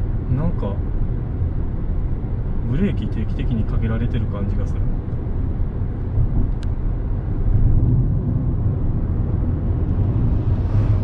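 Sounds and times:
car cabin road rumble: 0:00.0 - 0:11.0.

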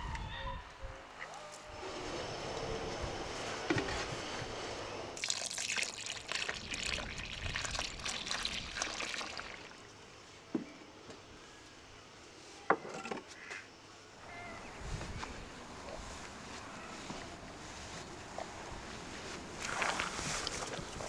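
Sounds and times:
liquid pouring and splashing: 0:05.2 - 0:09.9.

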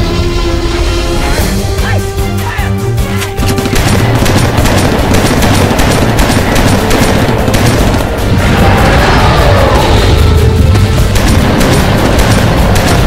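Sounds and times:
film soundtrack music: 0:00.0 - 0:13.0
rapid bangs: 0:03.2 - 0:08.9, 0:10.6 - 0:13.0.

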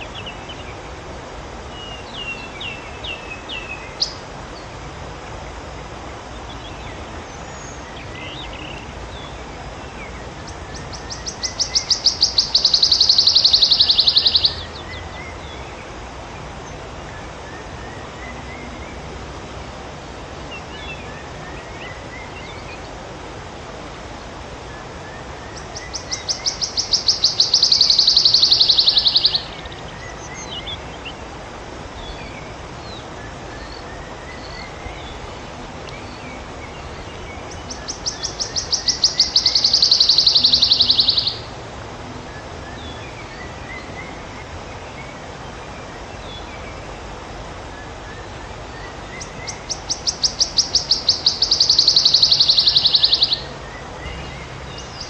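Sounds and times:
wood warbler trilling song: 0:00.0 - 0:55.0
other birds calling: 0:10.2 - 0:15.6, 0:24.3 - 0:32.4, 0:33.0 - 0:55.0.

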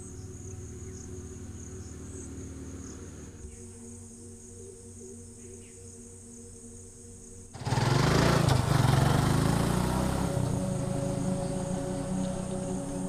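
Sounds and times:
motorcycle passing by: 0:00.0 - 0:03.5, 0:07.6 - 0:13.0
faint music: 0:00.0 - 0:13.0
insects: 0:00.0 - 0:13.0.

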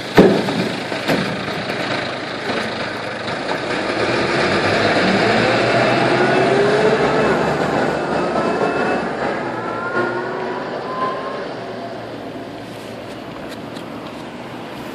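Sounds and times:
bus diesel engine: 0:00.0 - 0:14.9
gearbox whine rising: 0:03.8 - 0:12.6.

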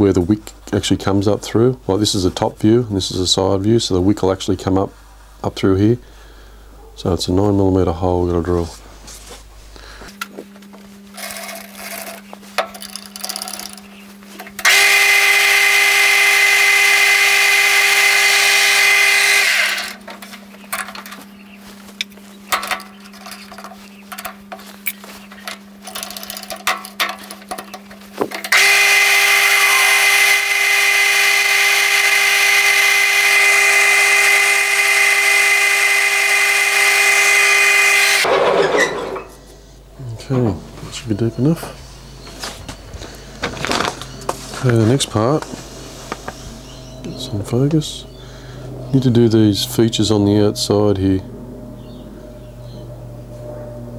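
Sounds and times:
lathe drilling metal whine: 0:14.6 - 0:20.0, 0:28.5 - 0:39.2.

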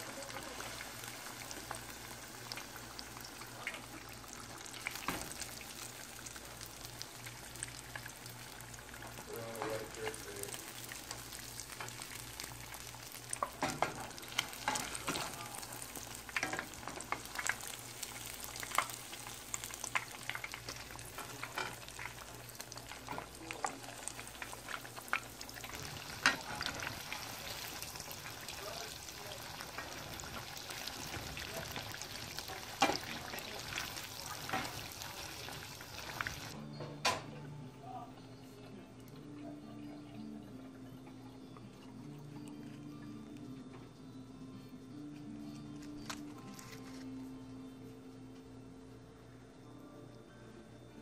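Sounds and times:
fish sizzling in hot oil: 0:00.0 - 0:36.6
metal tongs clinking on pan: 0:13.4 - 0:15.4, 0:16.3 - 0:17.7, 0:21.1 - 0:24.6.

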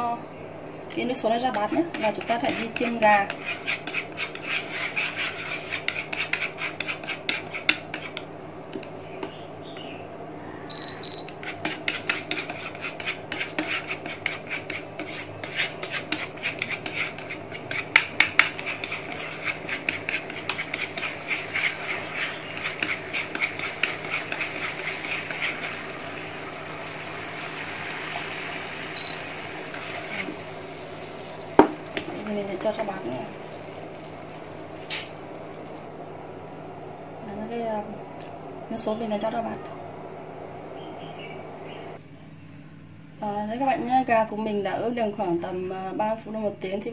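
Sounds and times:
induction cooktop hum: 0:00.0 - 0:46.9
chopsticks scraping a frying pan: 0:01.5 - 0:08.2, 0:11.3 - 0:35.9
cooktop beeps: 0:10.7 - 0:11.4, 0:28.5 - 0:29.7.

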